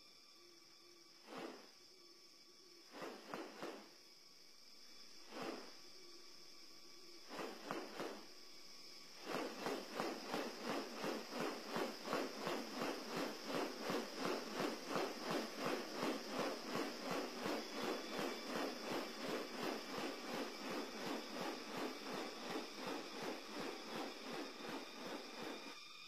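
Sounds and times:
bird making noisy pulses: 0:05.3 - 0:05.7, 0:07.3 - 0:08.3, 0:09.1 - 0:25.8.

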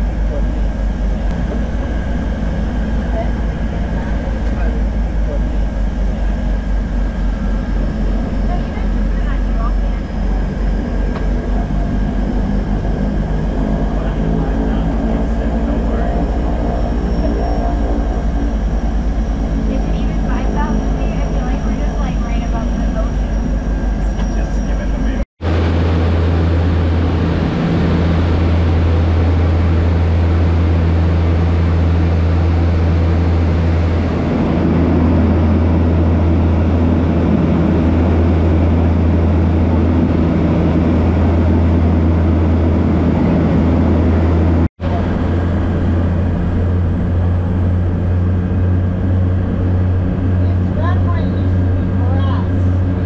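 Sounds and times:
turboprop engines droning: 0:00.0 - 0:53.0.

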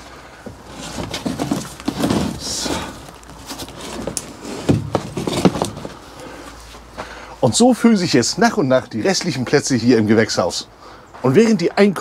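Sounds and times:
plastic scraping on wood: 0:00.5 - 0:06.2.

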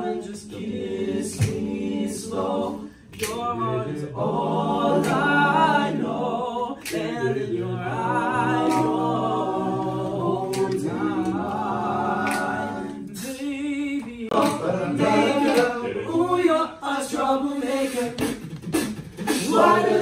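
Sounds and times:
men singing in harmony: 0:00.0 - 0:18.4
vocal percussive clicks: 0:03.1 - 0:03.5, 0:06.8 - 0:07.2, 0:08.5 - 0:09.2, 0:10.3 - 0:14.7.

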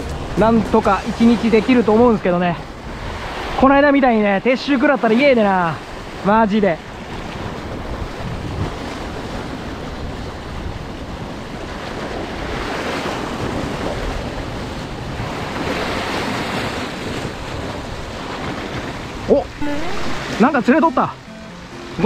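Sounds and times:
wind buffeting microphone: 0:00.0 - 0:03.6, 0:06.8 - 0:20.4
surf breaking on rocks: 0:00.0 - 0:04.0, 0:11.2 - 0:22.0.

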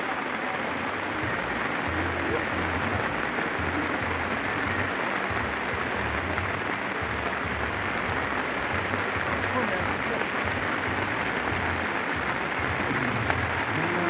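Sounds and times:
heavy rain falling onto pond: 0:00.0 - 0:14.0.

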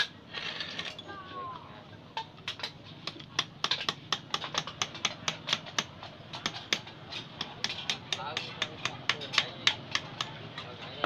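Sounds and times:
metal tool clicking on metal parts: 0:02.2 - 0:10.9.

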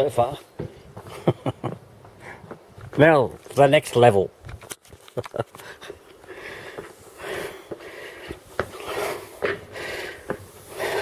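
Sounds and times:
footsteps on wooden stair treads: 0:00.5 - 0:01.2, 0:02.0 - 0:03.0, 0:05.9 - 0:11.0
heavy breathing: 0:02.2 - 0:02.6, 0:05.6 - 0:11.0.

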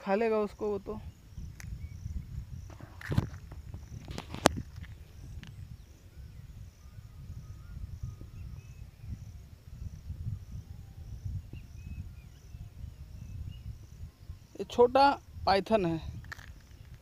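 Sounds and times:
insect chirping in high pulses: 0:00.0 - 0:17.0
faint bird chirps: 0:00.6 - 0:02.7, 0:05.0 - 0:14.6
low microphone rumble: 0:00.6 - 0:17.0.

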